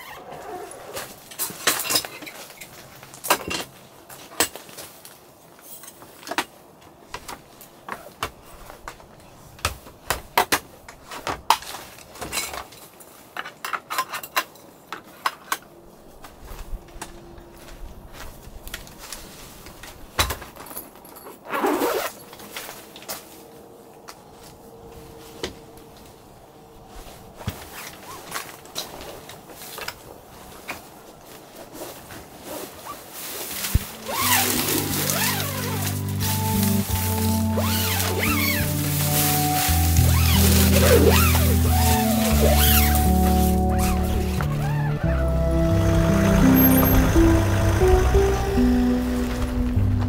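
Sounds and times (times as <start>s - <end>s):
camping gear clicking and knocking: 1.0s - 15.8s, 19.6s - 23.2s.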